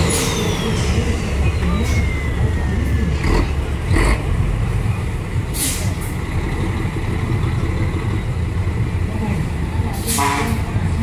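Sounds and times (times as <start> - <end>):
diesel truck engine rumbling: 0.0 - 11.0
sharp hiss of air: 5.6 - 6.0.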